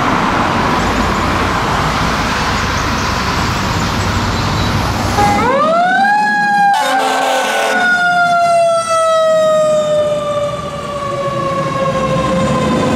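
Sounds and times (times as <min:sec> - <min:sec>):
horn blast: 0:05.2 - 0:05.6, 0:06.7 - 0:07.9.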